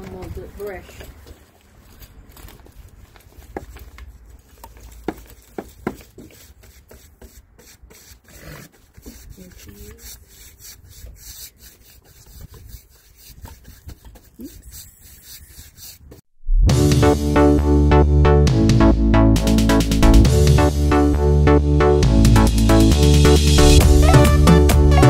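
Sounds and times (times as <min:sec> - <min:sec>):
paint roller rubbing on boards: 0:00.0 - 0:16.3.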